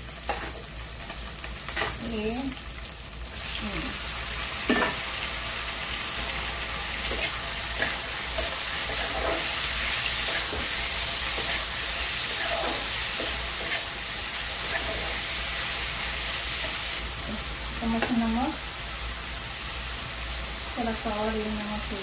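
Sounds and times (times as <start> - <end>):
vegetables sizzling in hot oil: 0.0 - 22.0
metal spatula scraping a pan: 0.2 - 0.6, 1.7 - 2.0, 7.0 - 15.4.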